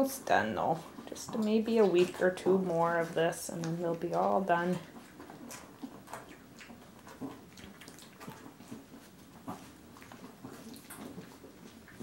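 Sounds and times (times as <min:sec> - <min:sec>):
puppies suckling: 0:00.0 - 0:12.0.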